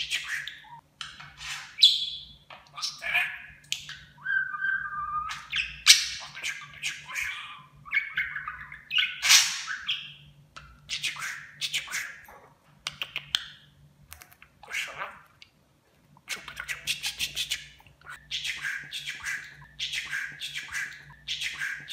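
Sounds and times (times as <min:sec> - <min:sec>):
budgerigar chirping and warbling: 0:00.0 - 0:10.3, 0:14.6 - 0:15.3.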